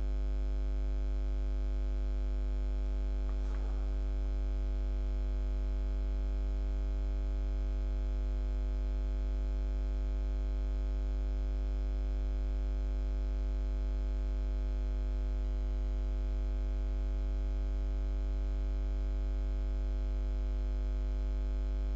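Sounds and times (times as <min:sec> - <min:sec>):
electrical hum: 0:02.8 - 0:05.7.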